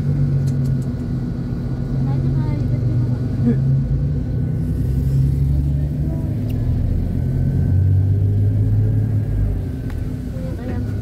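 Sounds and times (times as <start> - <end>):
bus engine and road rumble: 0.0 - 11.0.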